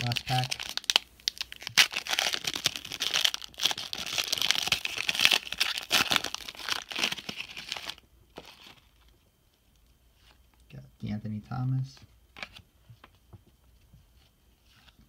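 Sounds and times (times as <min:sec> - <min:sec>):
plastic wrapper crinkling and tearing: 0:00.0 - 0:09.2.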